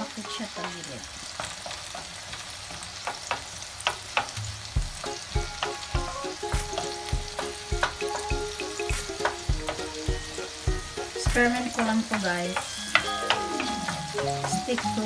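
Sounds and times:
onions sizzling in a pan: 0.0s - 15.0s
wooden spatula clicking on pan: 0.5s - 15.0s
light tune with steady beat: 4.8s - 15.0s.

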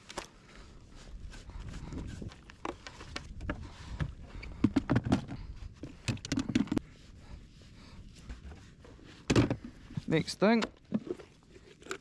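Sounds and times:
fishing gear knocks and clicks: 2.4s - 6.8s.

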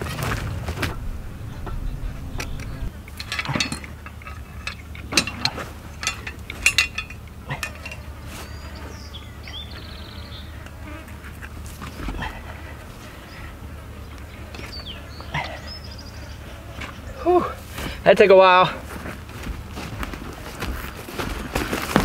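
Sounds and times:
steady low hum: 0.0s - 3.2s.

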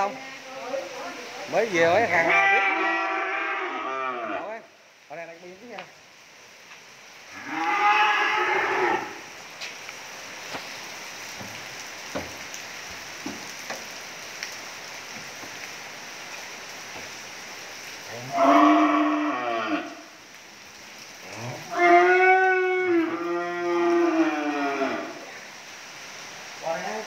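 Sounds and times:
cattle mooing: 7.4s - 9.2s, 18.2s - 20.0s, 21.4s - 25.2s.

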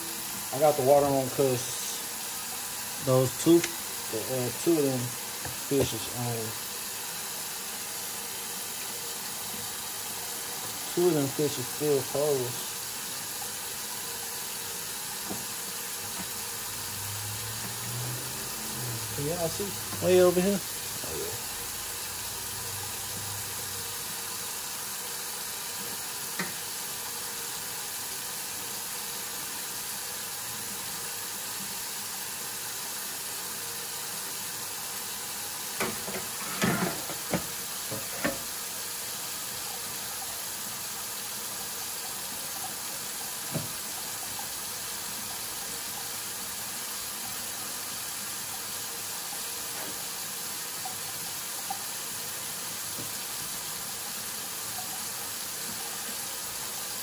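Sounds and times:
tap running into metal sink: 5.4s - 6.1s, 15.2s - 16.4s, 25.8s - 26.8s, 35.8s - 38.6s, 43.4s - 44.3s, 52.9s - 53.2s.

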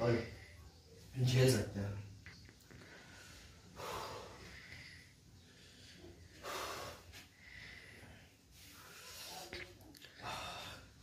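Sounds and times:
man breathing hard: 2.8s - 9.4s, 10.1s - 11.0s.

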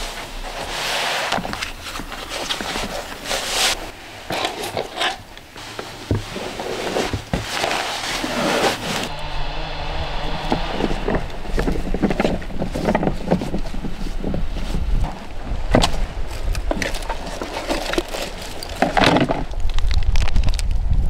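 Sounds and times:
rubber gloves being pulled on: 0.0s - 4.4s, 5.0s - 15.7s
rubber boots being pulled on: 0.0s - 19.5s.

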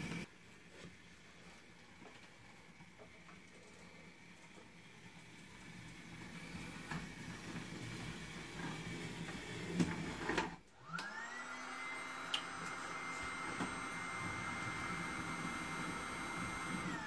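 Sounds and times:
model train motor whining: 3.8s - 17.0s.

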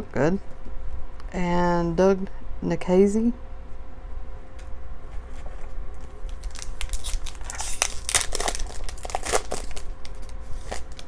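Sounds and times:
card pack wrapper tearing and crinkling: 6.0s - 11.0s.

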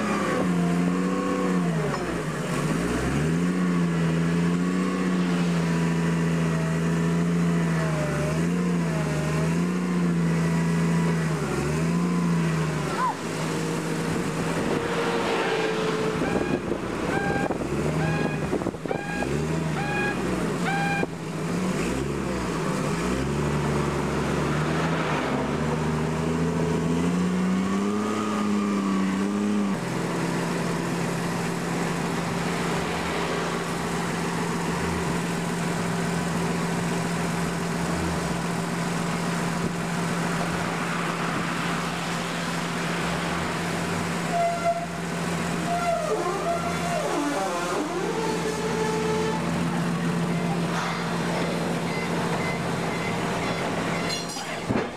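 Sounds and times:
forklift engine revving: 0.0s - 54.9s
short repeated beeps: 16.3s - 21.1s, 51.8s - 54.4s.

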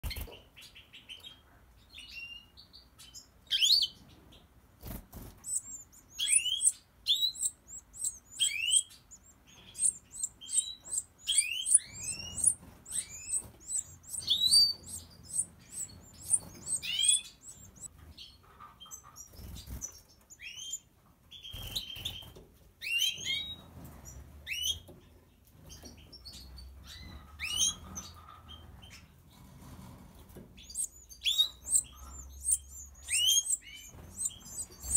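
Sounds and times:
goldfinches chirping: 4.9s - 17.9s, 30.6s - 34.9s.

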